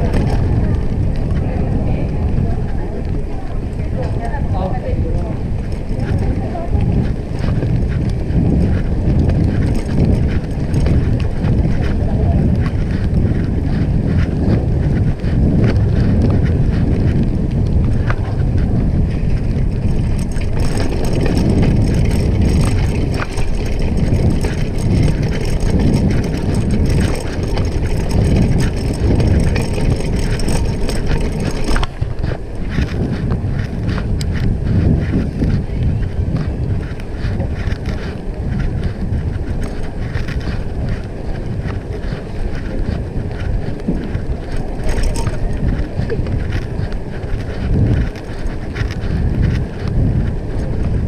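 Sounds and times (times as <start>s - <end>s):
bicycle rattling over cobbles: 0.0s - 51.0s
tyres rumbling on wet paving: 0.0s - 51.0s
wind buffeting microphone: 0.0s - 51.0s.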